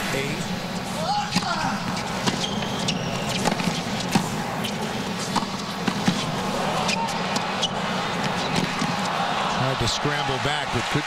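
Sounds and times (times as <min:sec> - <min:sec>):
stadium crowd hum: 0:00.0 - 0:11.0
ball bouncing on court: 0:01.3 - 0:04.4, 0:05.3 - 0:06.3, 0:08.2 - 0:09.1
tennis ball hit by rackets: 0:03.3 - 0:04.4, 0:05.2 - 0:06.3, 0:08.2 - 0:09.1.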